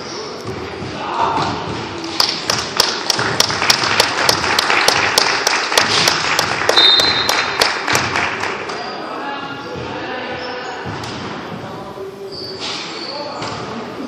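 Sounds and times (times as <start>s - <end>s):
audience applause: 2.5s - 8.7s.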